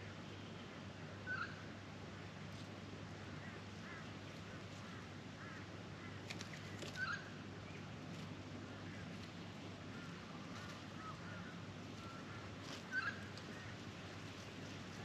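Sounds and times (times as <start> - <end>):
magpie calling: 1.3 - 1.6, 6.9 - 7.3, 9.9 - 13.8.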